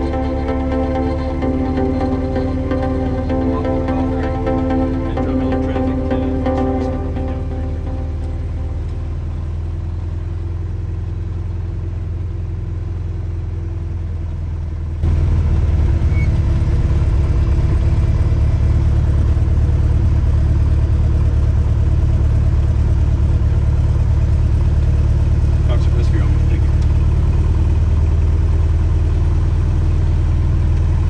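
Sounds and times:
propeller aircraft engine drone: 0:00.0 - 0:31.0.

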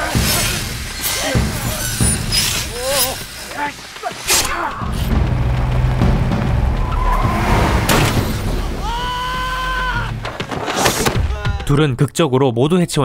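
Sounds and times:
sharp hit: 0:05.0 - 0:09.2
car engine rumble: 0:05.1 - 0:09.0.

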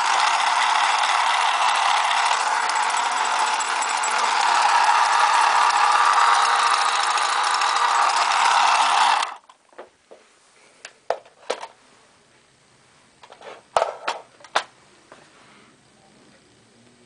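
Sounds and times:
toy car motor rattling: 0:00.0 - 0:09.5.

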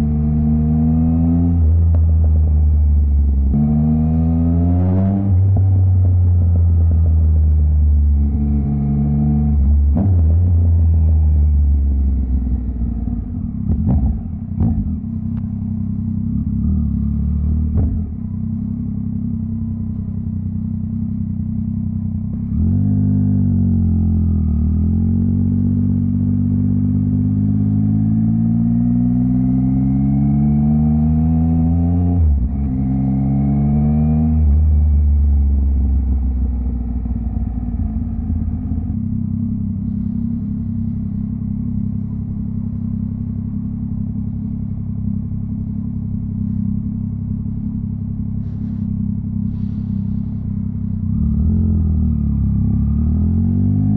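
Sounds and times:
motorcycle engine revving: 0:00.0 - 0:21.1, 0:21.7 - 0:53.9.

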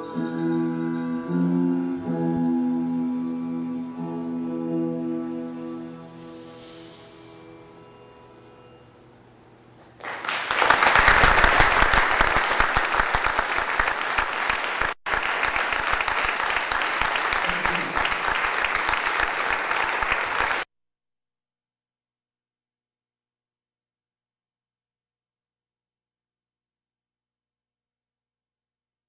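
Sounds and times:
audience applauding: 0:10.0 - 0:20.7.

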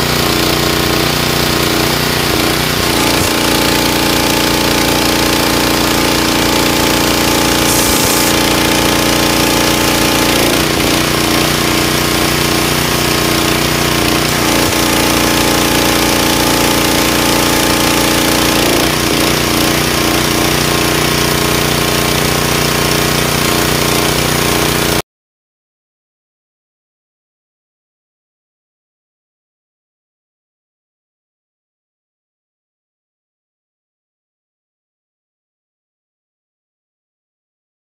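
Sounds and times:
pressure washer engine running: 0:00.0 - 0:25.0
water spraying from wand: 0:00.1 - 0:21.5.

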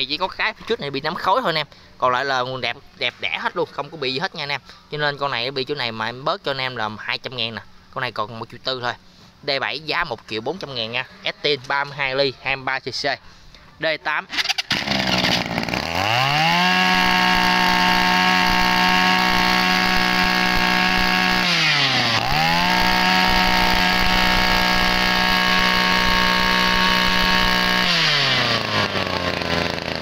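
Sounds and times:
brush cutter engine revving: 0:14.3 - 0:30.0.

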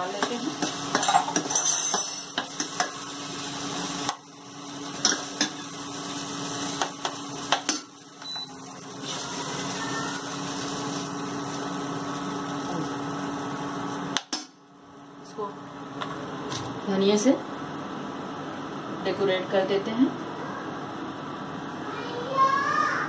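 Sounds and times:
spoon scraping and knocking pan: 0:00.2 - 0:03.0.

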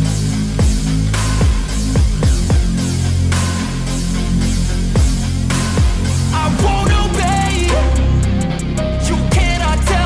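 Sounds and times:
heavy bass line: 0:00.0 - 0:10.0
kick drums: 0:00.6 - 0:02.8, 0:05.0 - 0:05.2, 0:05.8 - 0:06.0, 0:06.6 - 0:07.2.

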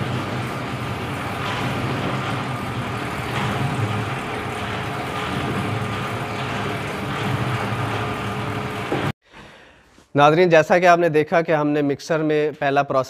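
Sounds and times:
mixer motor humming: 0:00.0 - 0:09.2.

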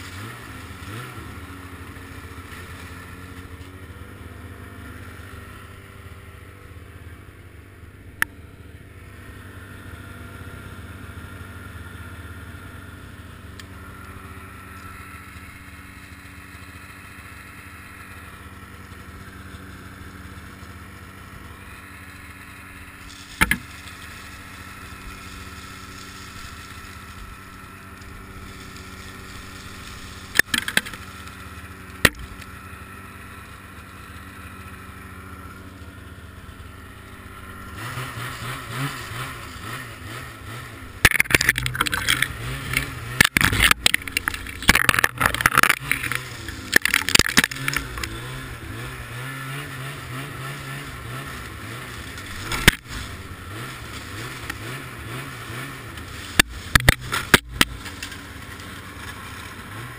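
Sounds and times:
branches cracking and scraping: 0:00.0 - 0:04.2, 0:18.0 - 0:59.9
snowmobile engine running: 0:00.0 - 0:59.9.

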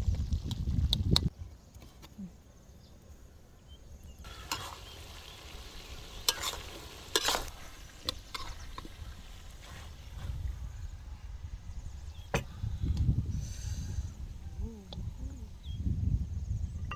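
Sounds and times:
meat sizzling in a wok: 0:04.2 - 0:10.4
metal spatula scraping pan: 0:06.3 - 0:07.5.

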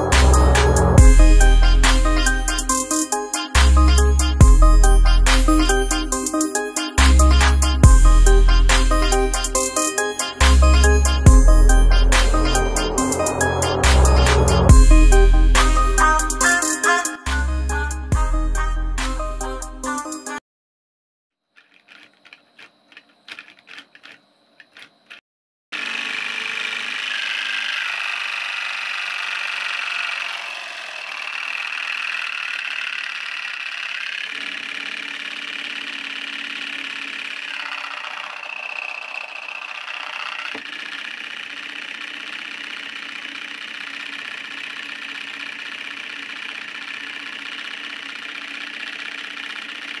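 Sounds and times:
small motor whirring: 0:25.8 - 0:50.0.

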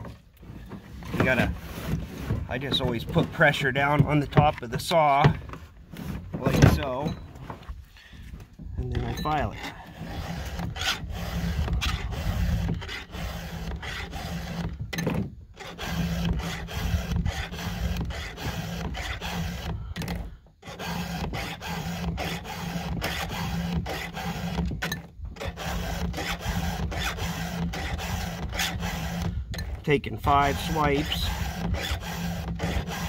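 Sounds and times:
file rasping on chain teeth: 0:09.0 - 0:14.8, 0:15.6 - 0:19.9, 0:20.6 - 0:24.8, 0:25.4 - 0:33.0.

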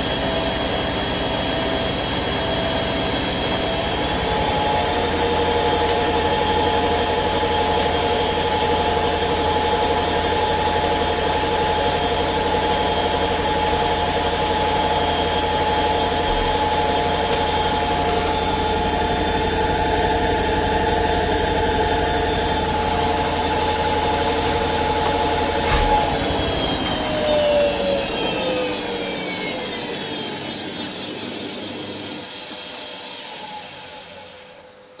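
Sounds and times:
washing machine spinning whine: 0:00.0 - 0:35.0.

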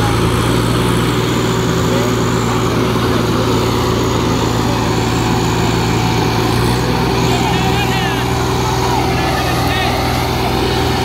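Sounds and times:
tractor diesel engine running: 0:00.0 - 0:11.0.

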